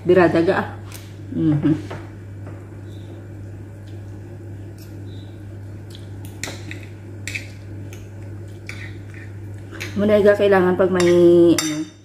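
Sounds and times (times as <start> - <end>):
steady low hum: 0.0 - 12.0
cutlery scraping ceramic plate: 8.7 - 10.0.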